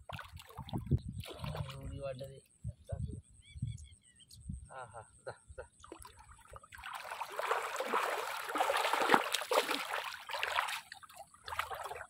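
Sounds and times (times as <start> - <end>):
fish thrashing and splashing: 6.7 - 12.0.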